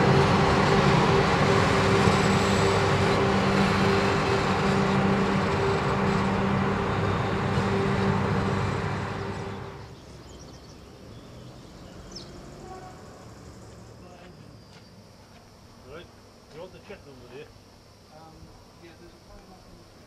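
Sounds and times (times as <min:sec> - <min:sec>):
electric locomotive running past: 0:00.0 - 0:15.1.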